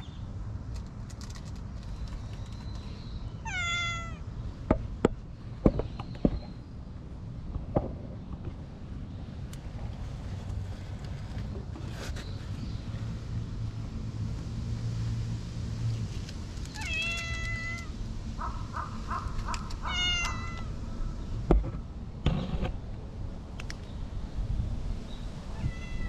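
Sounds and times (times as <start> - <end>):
cat meowing: 3.4 - 4.2, 16.8 - 17.9, 19.8 - 20.7, 25.5 - 26.0
cat chirps: 19.7 - 20.7.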